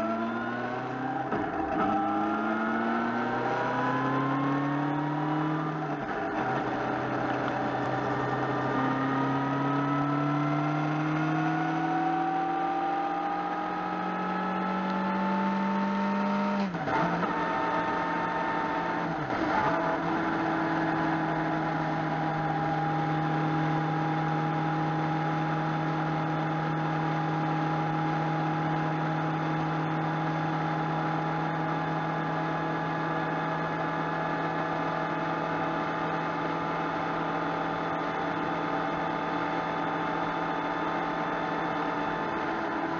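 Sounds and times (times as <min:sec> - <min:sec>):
wind and road noise: 0:00.0 - 0:24.4
motorcycle engine accelerating: 0:00.0 - 0:42.9.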